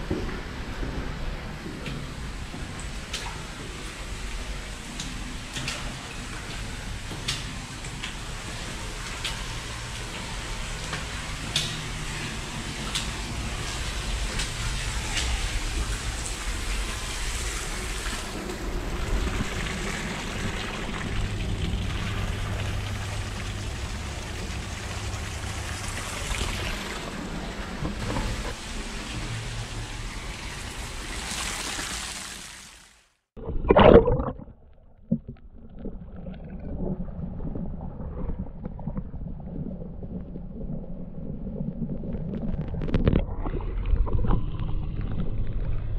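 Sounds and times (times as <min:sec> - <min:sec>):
water rushing through tunnel: 0:00.0 - 0:33.0.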